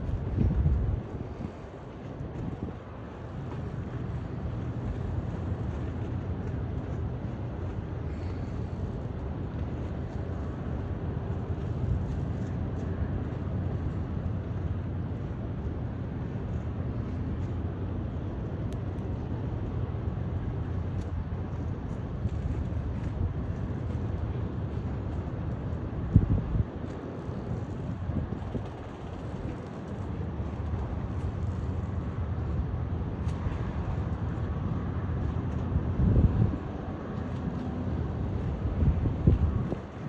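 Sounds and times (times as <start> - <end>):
wind buffeting microphone: 0.0 - 5.7, 21.2 - 37.3, 37.9 - 40.0
boat engines rumbling: 0.0 - 40.0.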